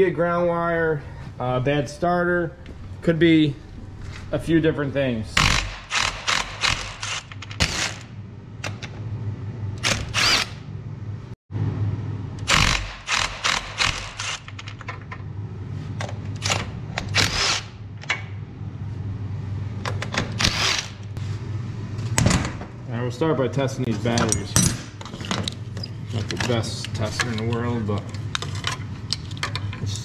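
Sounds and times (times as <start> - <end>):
low hum: 0.0 - 30.0
cordless impact driver bursts: 5.4 - 8.1, 9.8 - 10.6, 12.4 - 14.5.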